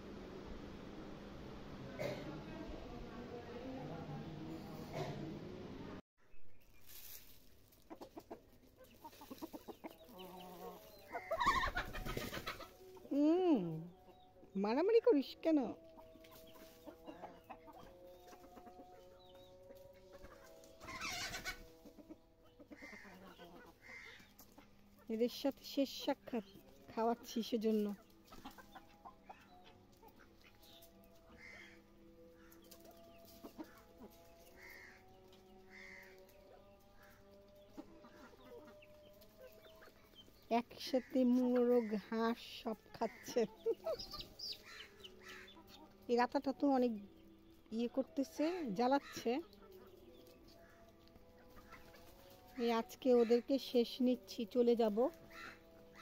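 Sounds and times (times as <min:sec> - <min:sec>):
chickens clucking: 0:06.8 - 0:56.0
chicken call: 0:10.4 - 0:12.7, 0:20.2 - 0:21.6.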